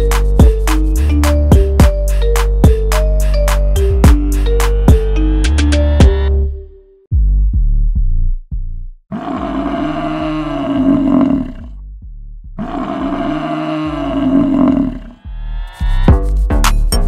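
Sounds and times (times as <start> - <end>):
low falling musical hits: 1.5 - 7.4
buffalo bellowing: 9.1 - 11.7, 12.6 - 15.2.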